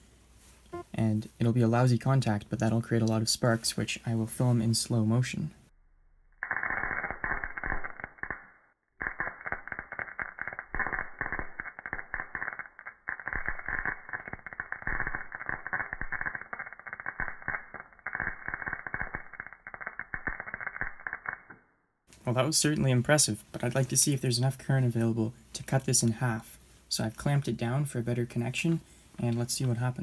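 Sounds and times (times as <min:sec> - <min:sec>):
electrical arcing crackling: 0:06.4 - 0:21.6.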